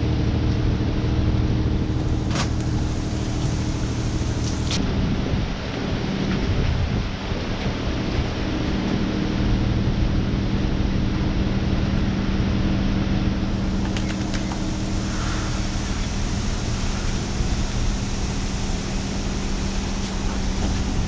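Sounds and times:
steady low hum: 0.0 - 21.0
hose water spraying: 2.0 - 4.8, 13.7 - 21.0.

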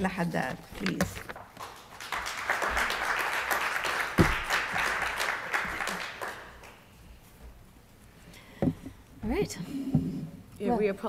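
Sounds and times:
audience applauding: 1.4 - 7.0.

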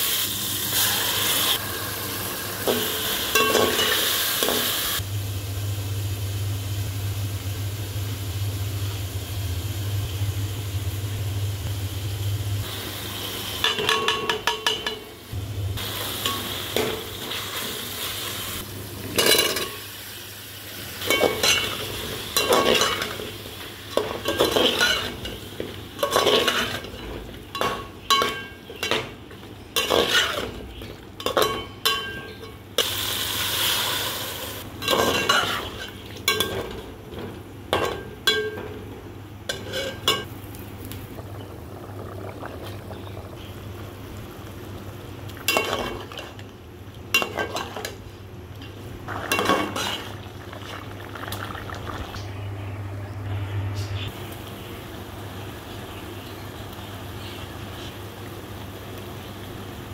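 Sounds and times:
frying sizzle: 0.0 - 52.5, 54.0 - 59.9
metal spoon scraping a pot: 29.8 - 32.4, 39.5 - 40.3.

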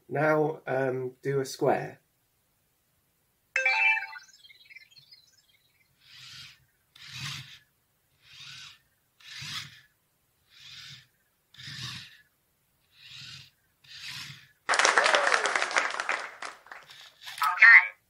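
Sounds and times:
small robot motors whirring: 5.8 - 14.6, 16.9 - 17.4.

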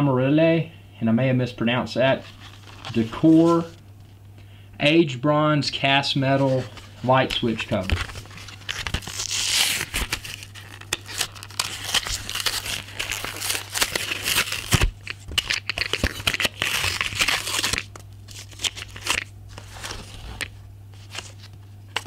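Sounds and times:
plastic crinkling: 6.7 - 22.0
paper card tearing: 7.3 - 22.0.

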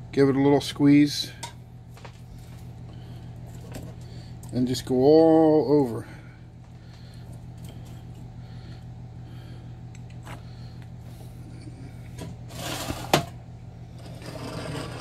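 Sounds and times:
steady low hum: 0.0 - 15.0
metal pan scraping on glass stove: 14.0 - 15.0.

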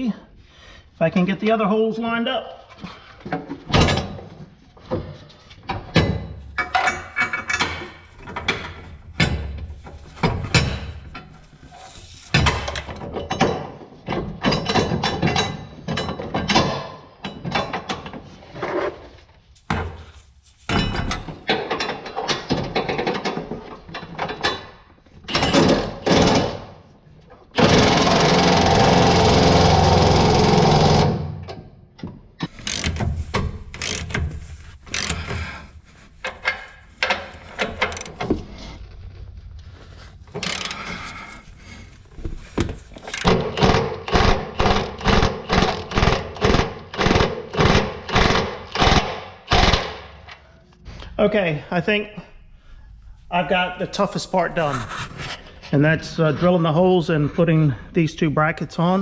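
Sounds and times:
steel bolts clanking and scraping: 3.2 - 19.0, 19.7 - 26.8, 30.9 - 38.8, 40.3 - 49.0
power tool running: 27.6 - 31.3.

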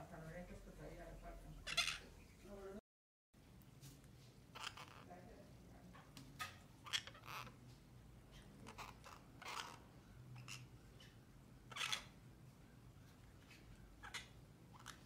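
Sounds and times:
parakeets making scratchy calls: 1.6 - 2.4, 4.5 - 5.3, 6.0 - 12.3, 13.0 - 15.0.

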